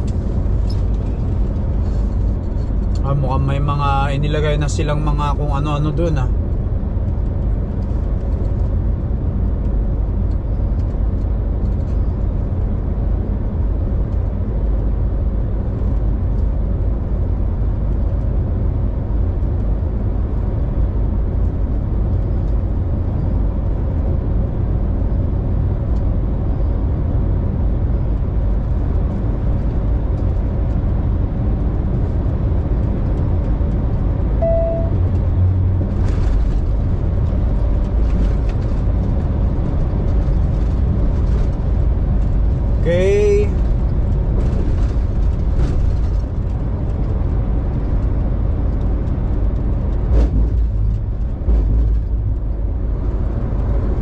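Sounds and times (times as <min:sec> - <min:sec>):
truck engine drone: 0:00.0 - 0:54.0
short beep: 0:34.4 - 0:35.0.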